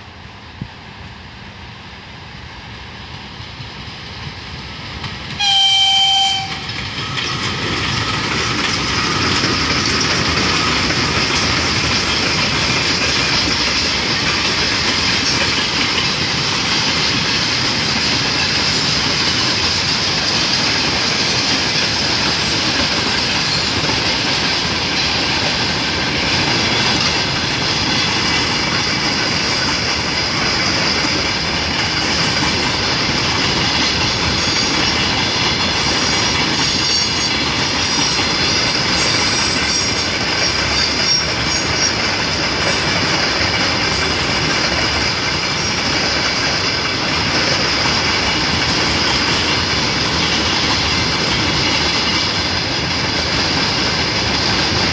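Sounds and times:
freight train wheels on rails: 0.0 - 54.9
train horn blast: 5.4 - 6.7.

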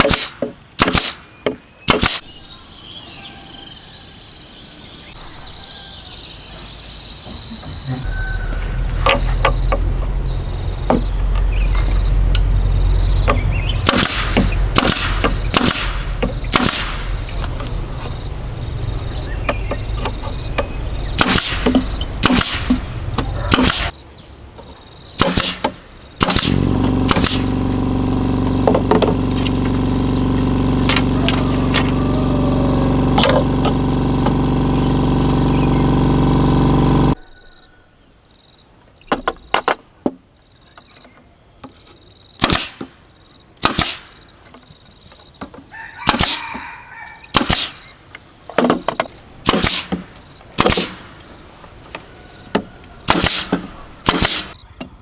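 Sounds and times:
nail gun firing: 0.0 - 2.3, 13.2 - 17.4, 21.1 - 22.9, 23.5 - 23.9, 25.2 - 32.0, 42.4 - 43.0, 43.6 - 44.2, 46.0 - 46.4, 47.3 - 47.9, 49.4 - 51.2, 53.1 - 54.6
air compressor humming: 8.0 - 23.9, 25.2 - 37.2.

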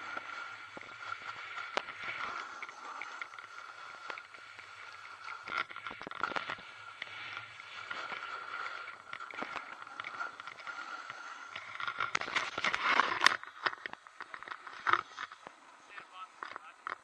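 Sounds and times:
snowboard scraping over snow: 0.0 - 17.0.

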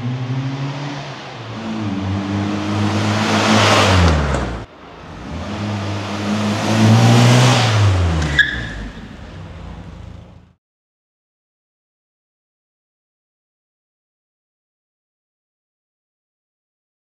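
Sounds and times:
car engine passing: 0.0 - 10.6
sharp squeak: 8.2 - 9.1.

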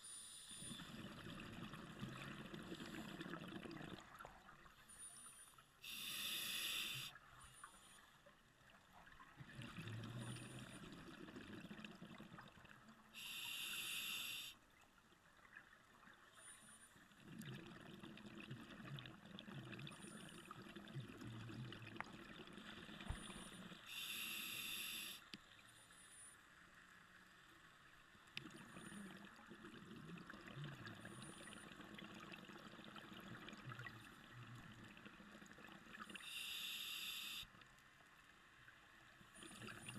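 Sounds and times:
regulator hissing on inhalation: 5.8 - 7.1, 13.2 - 14.6, 23.9 - 25.3, 36.2 - 37.5.

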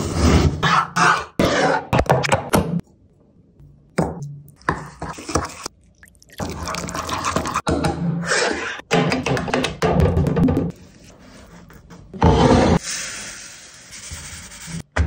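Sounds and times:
water pouring: 5.2 - 7.7.

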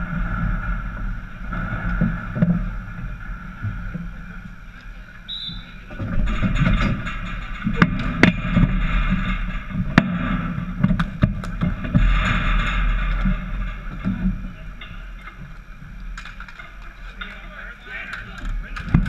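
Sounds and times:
noisy background: 0.0 - 19.0
hockey sticks clacking: 4.8 - 19.0.

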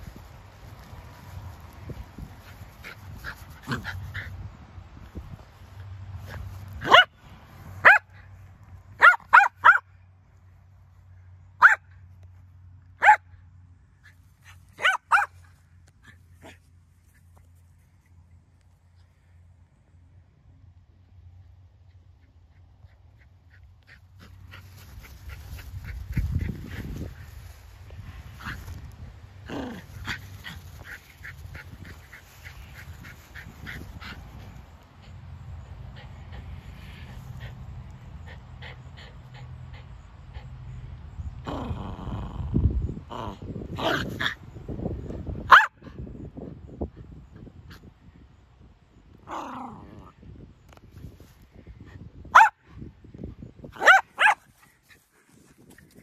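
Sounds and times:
small dog yapping: 14.7 - 15.4, 53.8 - 54.5.

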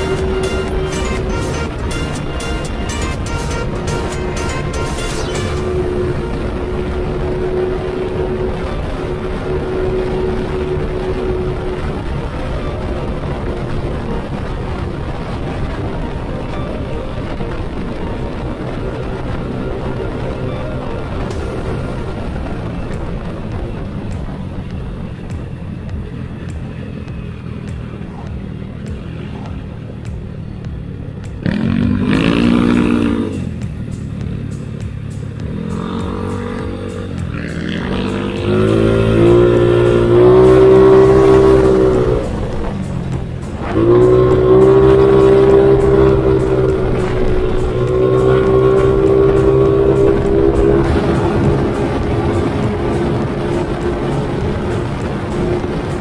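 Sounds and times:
motorcycle engine revving: 0.0 - 56.0
road and wind noise: 0.0 - 56.0.

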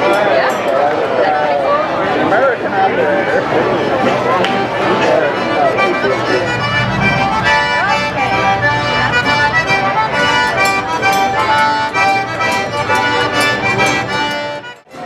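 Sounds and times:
strummed guitar: 3.2 - 15.0
fiddles: 3.3 - 15.0
piano accordion: 3.3 - 15.0
upright bass: 3.5 - 14.7.

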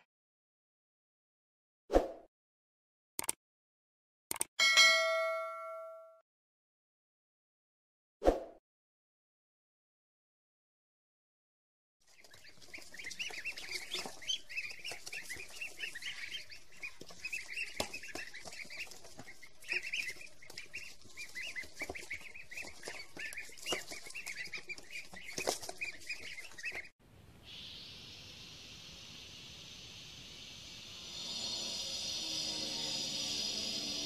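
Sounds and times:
ducklings peeping: 12.1 - 28.6.

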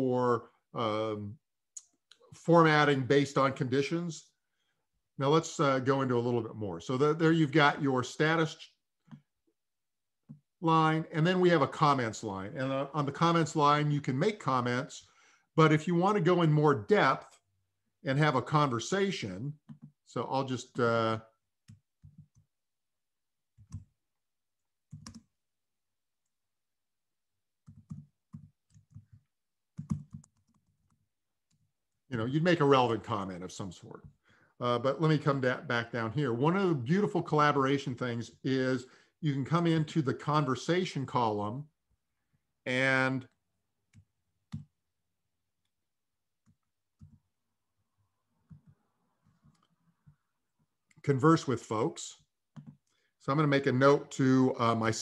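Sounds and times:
typing on computer keyboard: 19.6 - 19.9, 21.7 - 22.5, 24.9 - 25.3, 27.6 - 31.6, 46.5 - 47.2, 52.6 - 52.8
computer keyboard keystrokes: 24.9 - 25.2, 27.7 - 29.2, 29.8 - 30.7.

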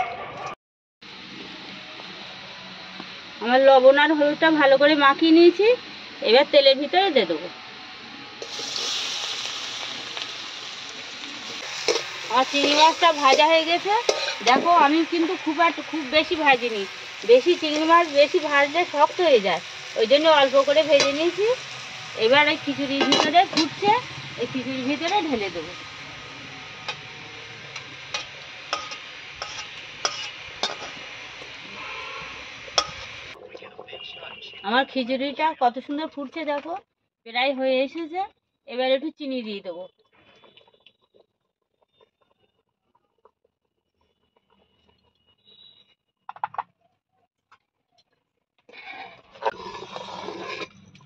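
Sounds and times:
steady hiss: 8.0 - 33.4
pot clattering: 11.7 - 14.8, 22.9 - 23.9, 28.1 - 31.0
metal spatula scraping a pan: 11.7 - 15.8, 22.9 - 24.0, 27.8 - 31.0, 48.8 - 50.9.

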